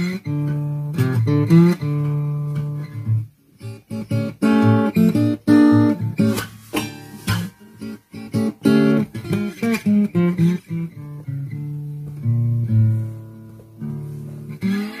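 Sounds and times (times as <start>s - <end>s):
acoustic slide guitar blues: 0.0s - 15.0s.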